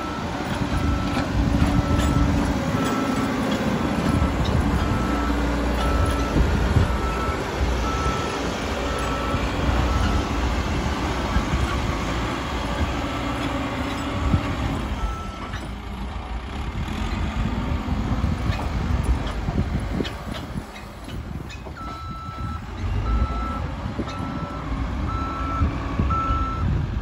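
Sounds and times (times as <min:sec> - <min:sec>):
reversing alarm beeping: 0:00.0 - 0:03.4, 0:04.0 - 0:10.4, 0:13.1 - 0:15.7, 0:21.8 - 0:26.7
diesel engine running: 0:00.0 - 0:27.0.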